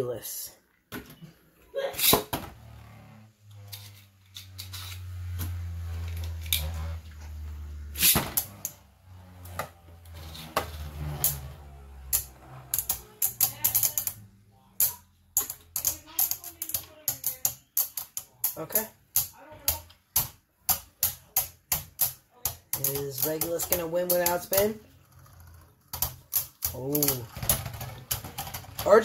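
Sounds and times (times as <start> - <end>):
spinning top whirring: 2.6 - 18.6.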